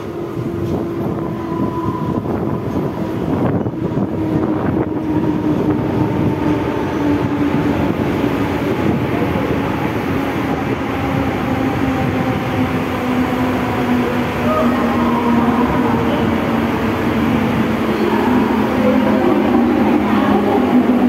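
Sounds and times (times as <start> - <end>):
train wheels rumbling on track: 0.0 - 21.0.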